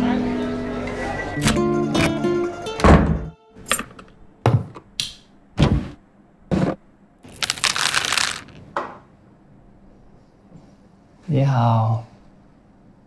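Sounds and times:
acoustic guitar music: 0.0s - 3.7s.

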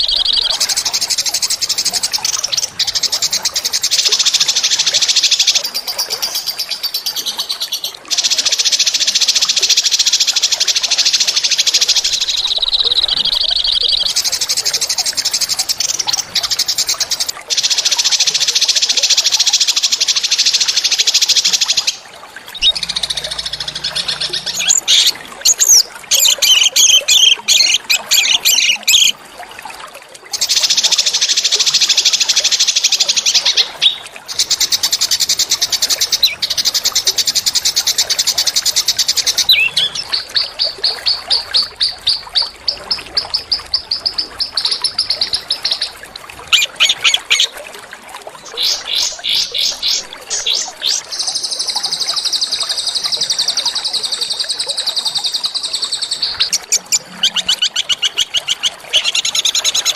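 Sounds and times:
songbirds singing rattling trills: 0.0s - 29.2s, 30.3s - 47.5s, 48.4s - 59.9s
bird chirps: 21.7s - 29.1s.

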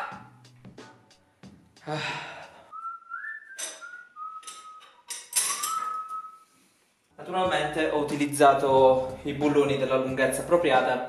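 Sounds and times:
man whistling a tune: 2.7s - 6.5s.

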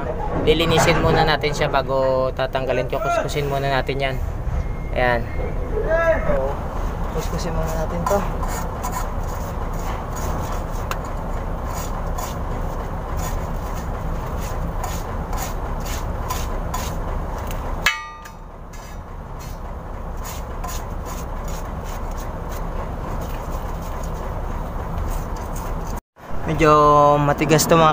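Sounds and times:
brisk scrubbing strokes: 6.6s - 17.6s, 18.2s - 26.0s
sharp metallic clank: 17.8s - 19.0s.

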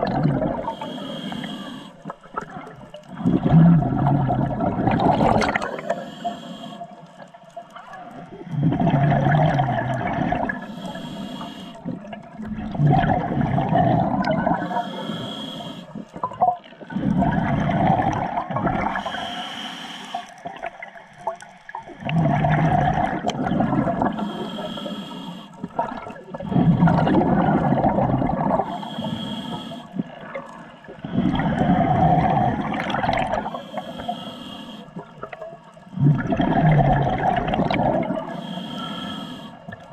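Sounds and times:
exhaled bubbles gushing: 0.0s - 0.8s, 2.0s - 6.0s, 8.0s - 10.8s, 11.8s - 14.8s, 15.9s - 19.2s, 20.4s - 24.6s, 25.6s - 28.8s, 29.9s - 33.9s, 35.0s - 38.5s
regulator inhale hiss: 0.6s - 2.1s, 5.6s - 7.1s, 10.5s - 12.0s, 14.5s - 16.0s, 19.0s - 20.4s, 24.1s - 25.8s, 28.6s - 30.1s, 33.4s - 35.0s, 38.2s - 39.9s.

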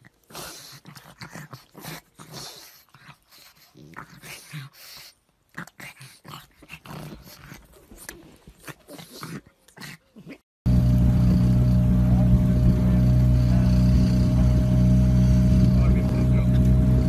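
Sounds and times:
dogs grunting and growling: 0.0s - 10.4s, 12.1s - 17.0s
boat motor humming: 10.7s - 17.0s.

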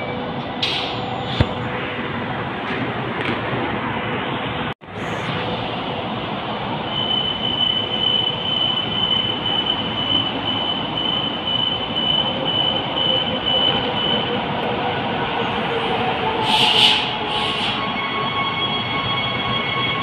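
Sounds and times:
train rumbling past: 0.0s - 20.0s
high whine: 4.8s - 12.3s.

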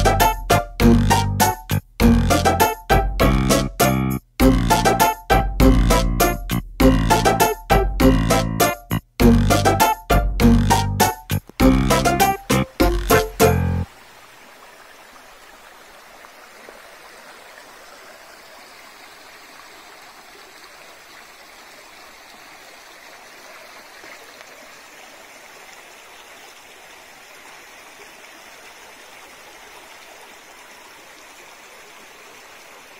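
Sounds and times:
stream rushing over stones: 11.4s - 32.9s.

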